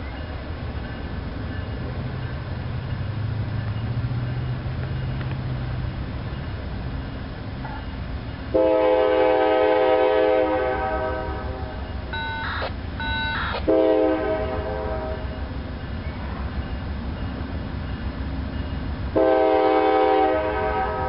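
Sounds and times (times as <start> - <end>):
low rumble of train: 0.0 - 21.0
locomotive air horn: 8.5 - 15.4, 19.2 - 21.0.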